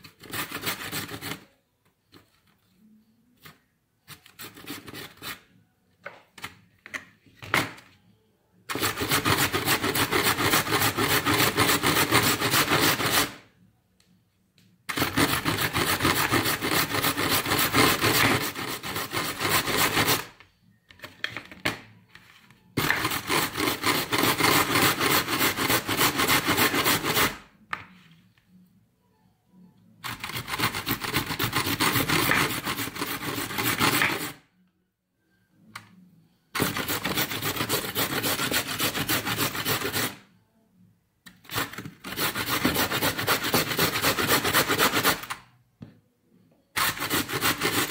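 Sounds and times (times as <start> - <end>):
carrot rasping on grater: 0.0 - 1.4, 8.7 - 13.4, 14.9 - 20.3, 22.8 - 27.3, 30.1 - 34.4, 36.6 - 40.2, 41.5 - 45.3, 46.8 - 47.9.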